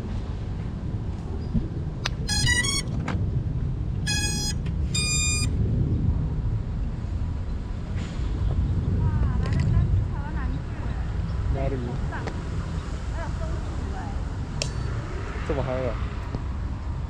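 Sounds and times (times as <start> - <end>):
steady low rumble: 0.0 - 17.0
quadcopter motor startup beeps: 2.3 - 2.9, 4.1 - 5.5.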